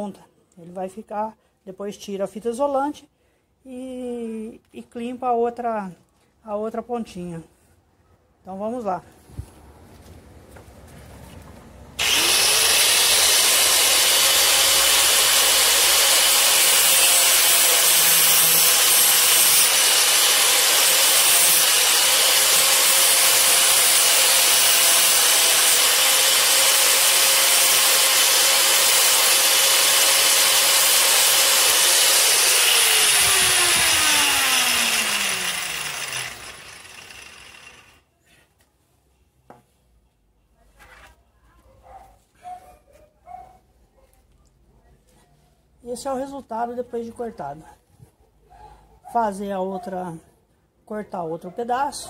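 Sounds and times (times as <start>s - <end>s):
angle grinder whining: 12.0s - 38.0s
grinder disc spinning down: 12.0s - 38.0s.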